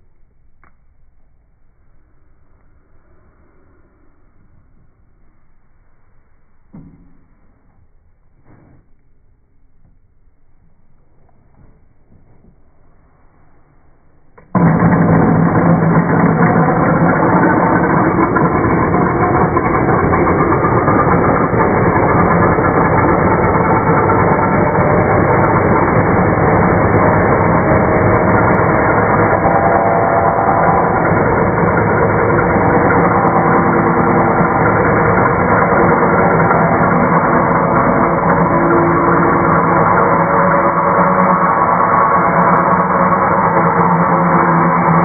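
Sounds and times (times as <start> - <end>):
circular saw cutting wood: 14.5 - 45.0.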